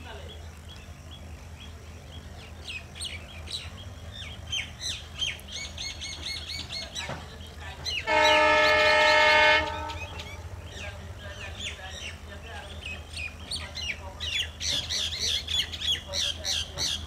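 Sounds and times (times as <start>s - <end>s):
birds chirping: 0.0s - 17.0s
diesel locomotive horn blast: 8.0s - 10.9s.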